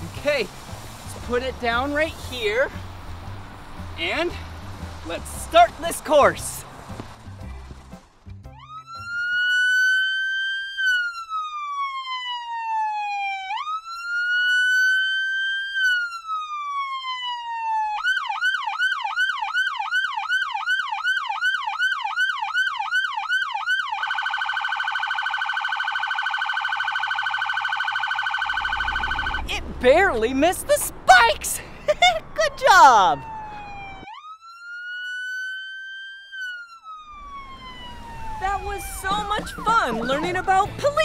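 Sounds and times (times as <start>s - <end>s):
police siren wailing and yelping: 8.5s - 29.6s, 31.9s - 41.0s.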